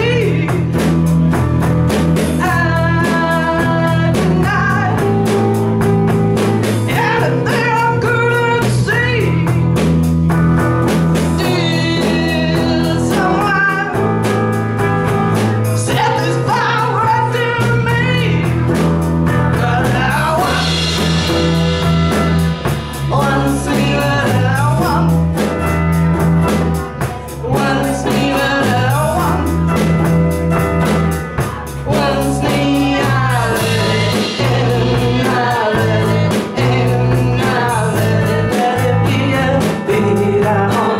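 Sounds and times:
women singing: 0:00.0 - 0:00.7, 0:02.4 - 0:05.4, 0:06.9 - 0:09.6, 0:11.4 - 0:14.0, 0:15.8 - 0:18.5, 0:19.5 - 0:21.6, 0:22.9 - 0:25.2, 0:27.3 - 0:29.6, 0:31.7 - 0:40.9
drums: 0:00.0 - 0:40.9
electric guitar: 0:00.0 - 0:40.9.

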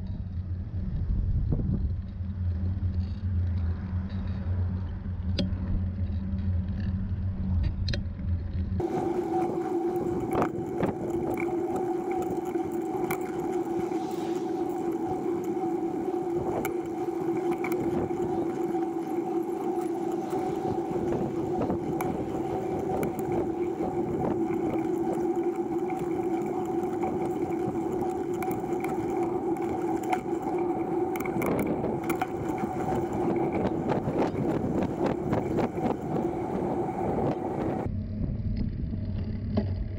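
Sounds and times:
low rumble: 0:00.0 - 0:39.9
trike rolling on pavement: 0:00.0 - 0:39.9
trike clicks and rattles: 0:08.8 - 0:37.9.

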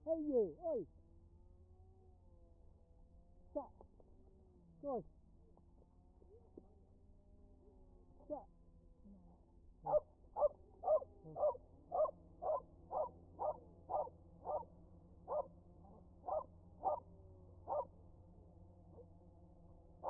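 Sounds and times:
small dog barking: 0:09.8 - 0:18.0.

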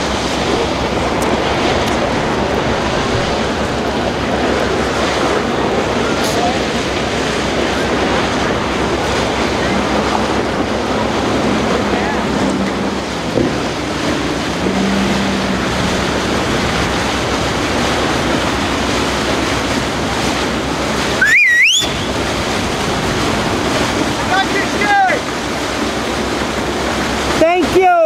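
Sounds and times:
wind on microphone: 0:00.0 - 0:24.6
boat bow wake: 0:00.0 - 0:28.0
surf rushing: 0:00.0 - 0:28.0
shrill whistle: 0:21.2 - 0:22.2.

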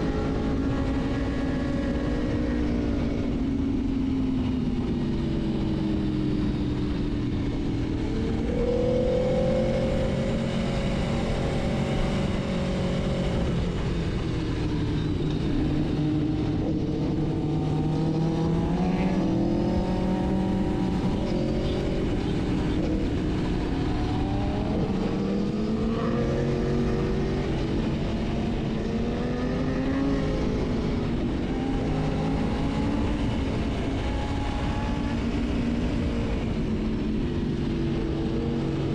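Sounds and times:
motorcycle engine revving: 0:00.0 - 0:38.9.

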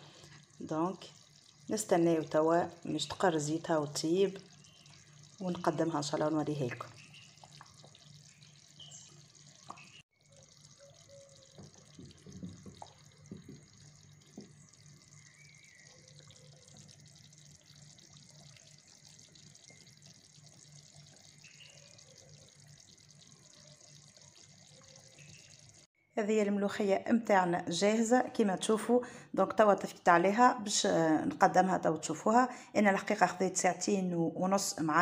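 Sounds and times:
stew simmering with bubbles plopping: 0:00.0 - 0:25.9.

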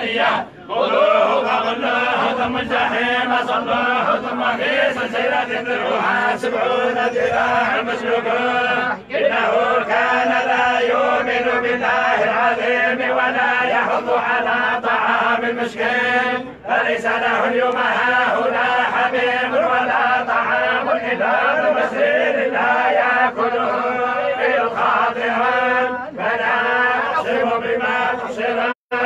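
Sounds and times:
men chanting in unison: 0:00.0 - 0:29.0.

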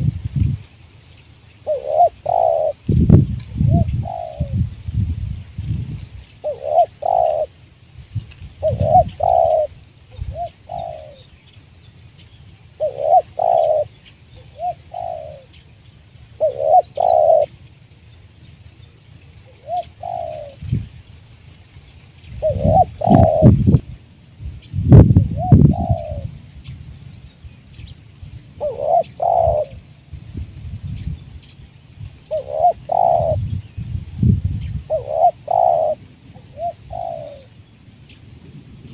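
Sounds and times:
dove cooing: 0:01.6 - 0:04.8, 0:06.4 - 0:07.6, 0:08.5 - 0:11.3, 0:12.7 - 0:15.6, 0:16.2 - 0:17.6, 0:19.4 - 0:20.8, 0:22.3 - 0:23.8, 0:25.2 - 0:26.5, 0:28.4 - 0:30.1, 0:32.2 - 0:33.6, 0:34.8 - 0:37.6.

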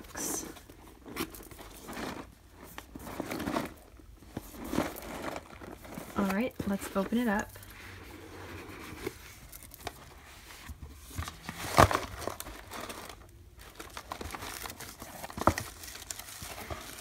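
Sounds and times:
tissue paper crinkling: 0:00.0 - 0:17.0
cardboard box being opened: 0:00.4 - 0:17.0
cardboard lid scraping: 0:00.7 - 0:13.2.

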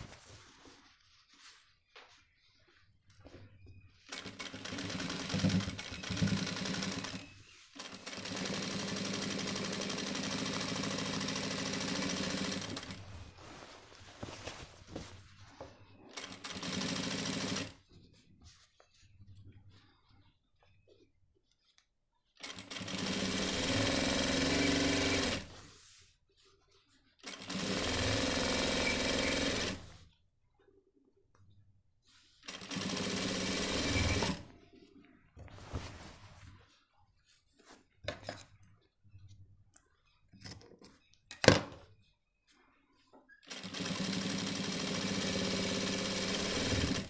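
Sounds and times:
cloth rustling: 0:00.0 - 0:04.3, 0:12.7 - 0:15.8, 0:34.7 - 0:38.9
sewing machine stitching: 0:04.1 - 0:13.0, 0:16.2 - 0:17.8, 0:22.4 - 0:25.5, 0:27.2 - 0:30.0, 0:32.4 - 0:34.5, 0:43.4 - 0:47.0.

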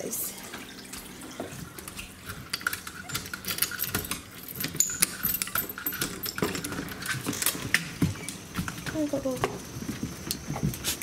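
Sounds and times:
keys jangling: 0:01.9 - 0:07.8.

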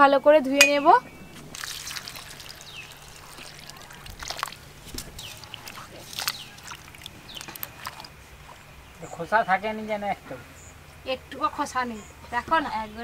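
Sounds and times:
water sloshing in a steel bowl: 0:00.6 - 0:09.3.

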